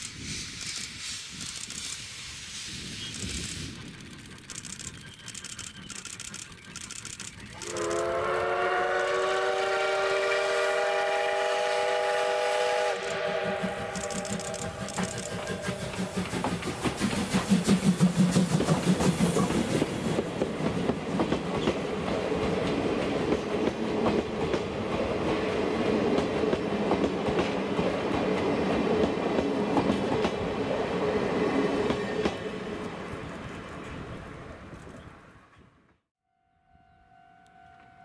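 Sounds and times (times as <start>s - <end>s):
steam locomotive hissing and chuffing: 0.0s - 4.7s, 7.4s - 34.0s
train wheels clicking over rail joints: 0.0s - 8.4s, 13.0s - 30.6s.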